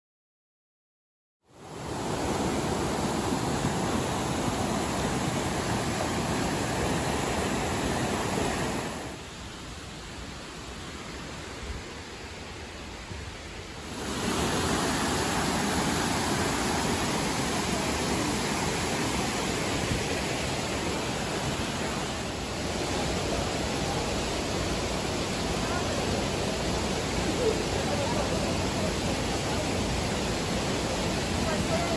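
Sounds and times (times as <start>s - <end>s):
waterfall and stream rushing: 1.5s - 31.9s.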